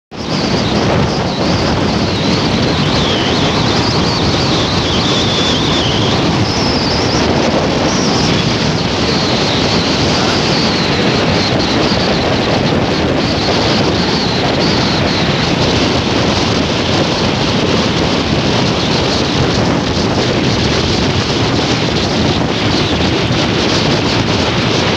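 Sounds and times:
road and engine noise: 0.1s - 24.9s
wind rushing over microphone: 0.1s - 24.9s
faint high whistle: 0.3s - 12.4s.

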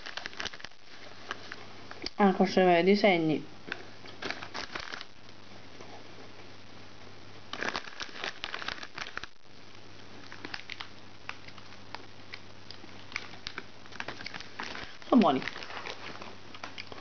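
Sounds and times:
small clicks and rustles: 0.0s - 2.2s, 10.2s - 17.0s
snack packaging crinkling: 0.0s - 2.2s, 3.7s - 5.3s, 7.5s - 9.4s, 10.2s - 17.0s.

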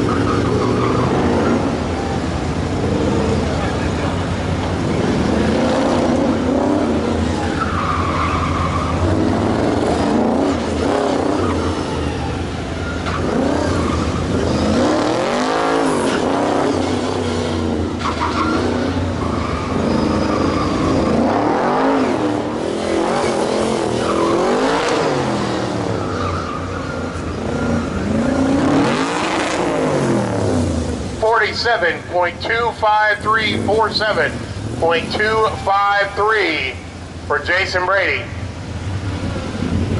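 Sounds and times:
truck engine revving: 0.0s - 39.9s
tyres squealing: 6.6s - 29.2s.

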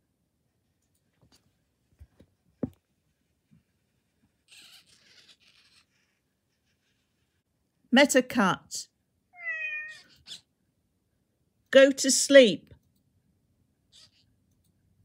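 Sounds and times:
knock: 2.6s - 2.8s.

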